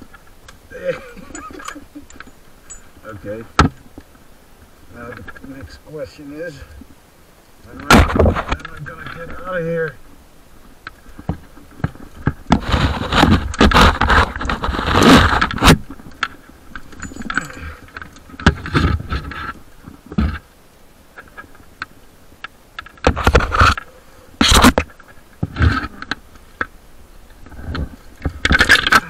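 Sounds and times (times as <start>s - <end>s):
metal hardware clinking: 1.0s - 3.3s, 16.8s - 18.1s
rope scraping: 11.0s - 20.4s, 23.0s - 26.1s.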